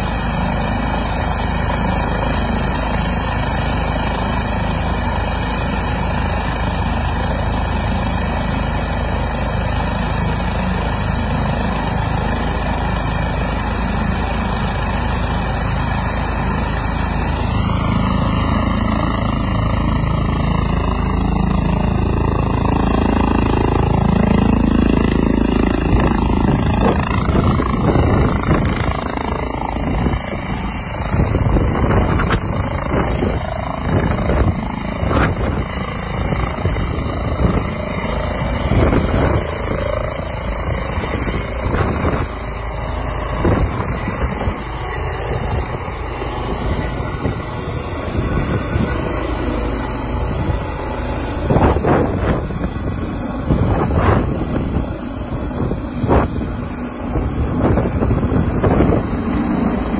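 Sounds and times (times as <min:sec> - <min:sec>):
helicopter turbines and rotor: 0:00.0 - 0:59.9
rotor wash buffeting microphone: 0:13.2 - 0:59.9.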